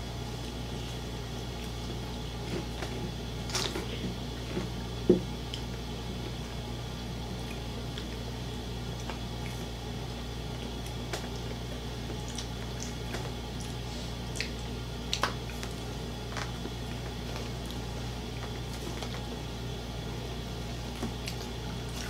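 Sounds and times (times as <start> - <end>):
steady low hum: 0.0 - 22.0
chewing: 9.0 - 9.8, 10.5 - 19.3.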